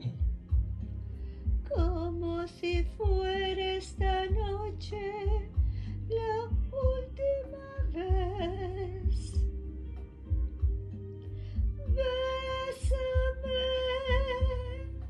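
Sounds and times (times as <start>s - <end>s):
musical accompaniment with bass pulse: 0.0s - 15.0s
woman singing with vibrato: 1.7s - 9.5s, 11.8s - 15.0s.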